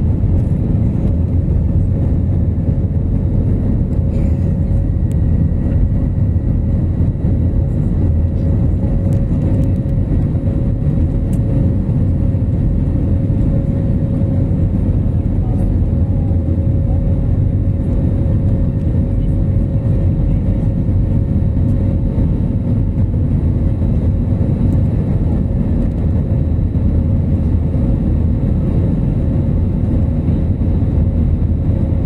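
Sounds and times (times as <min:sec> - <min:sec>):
jet engines and rushing air: 0:00.0 - 0:32.0
steady hum: 0:00.0 - 0:32.0.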